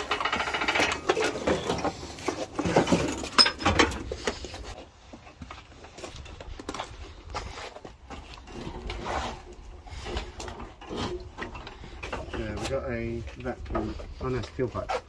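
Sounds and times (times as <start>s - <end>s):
metal tools clinking: 0.0s - 4.3s.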